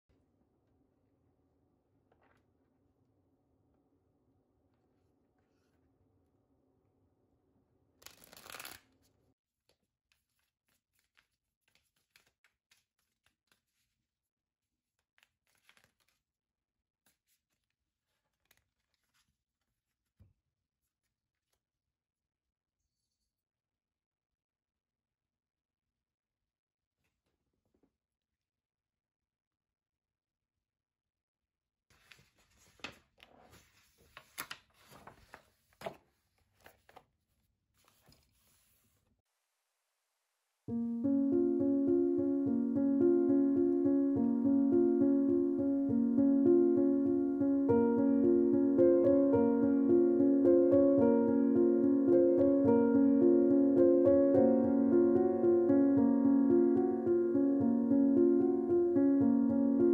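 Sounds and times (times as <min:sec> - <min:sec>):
cards being shuffled: 0:08.0 - 0:09.1, 0:09.8 - 0:14.0, 0:15.0 - 0:16.2
paper rustling: 0:08.0 - 0:09.1, 0:09.7 - 0:14.1, 0:14.8 - 0:16.3, 0:17.0 - 0:21.6, 0:31.9 - 0:37.2, 0:37.8 - 0:39.1.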